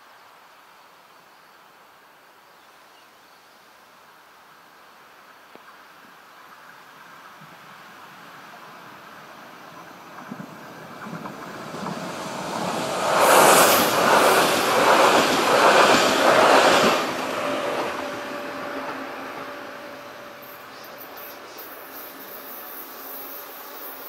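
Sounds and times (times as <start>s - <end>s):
passenger train passing: 6.9s - 24.0s
wheels clattering on rails: 9.7s - 19.6s.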